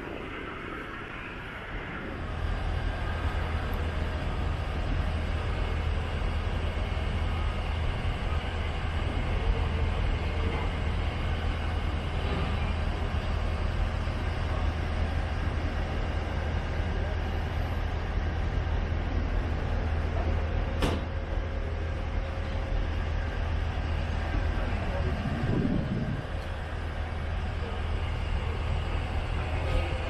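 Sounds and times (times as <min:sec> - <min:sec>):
low mechanical rumble: 0:00.0 - 0:30.0
outdoor noise: 0:00.0 - 0:30.0.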